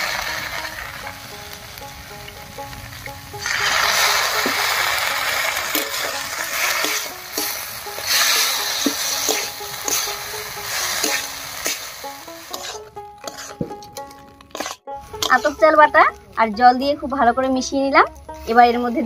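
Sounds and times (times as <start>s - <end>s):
paste sizzling in hot pan: 0.0s - 15.7s
spatula scraping a metal pan: 3.4s - 15.8s.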